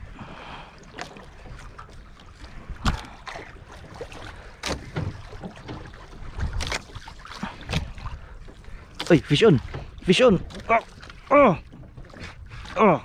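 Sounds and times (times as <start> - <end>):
water slapping against boat: 0.0 - 13.0
knocks against boat hull: 4.6 - 6.0.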